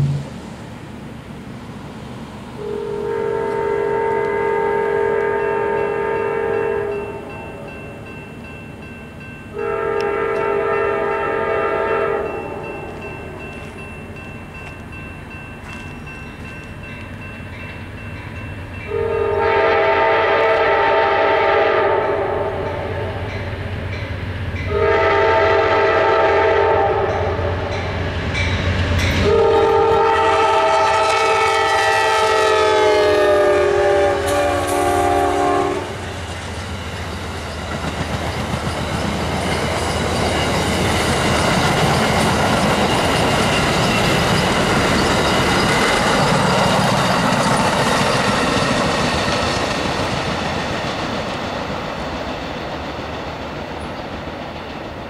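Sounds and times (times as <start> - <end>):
train cars rumbling and clacking: 0.0 - 55.0
locomotive chime horn: 2.6 - 8.2, 9.2 - 36.1.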